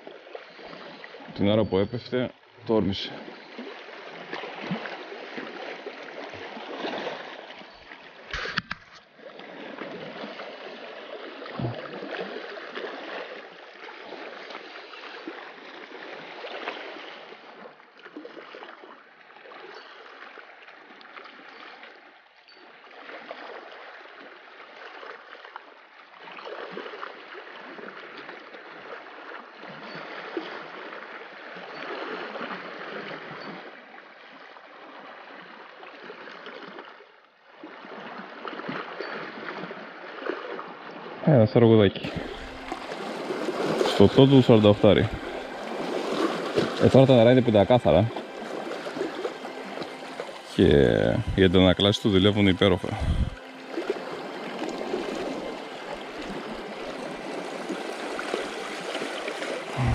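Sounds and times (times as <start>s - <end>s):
waves splashing over rocks: 42.0s - 59.9s.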